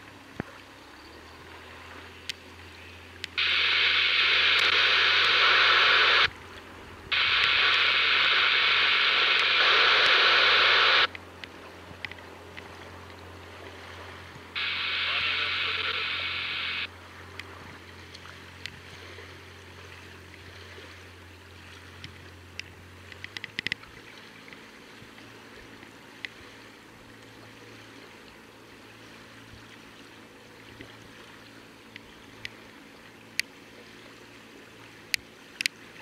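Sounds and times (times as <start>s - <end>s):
water lapping: 0.0s - 10.4s, 11.1s - 36.0s
sharp clicks: 3.3s - 6.3s, 7.2s - 12.2s
outboard motor running: 11.1s - 36.0s.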